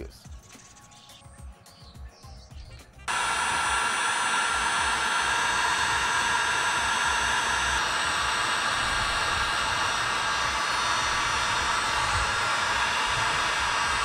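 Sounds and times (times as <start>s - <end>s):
heat gun blowing hot air: 3.1s - 14.0s.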